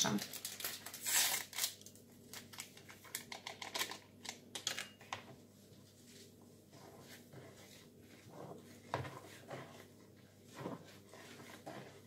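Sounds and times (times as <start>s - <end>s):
paper sachet crinkling: 0.0s - 4.0s.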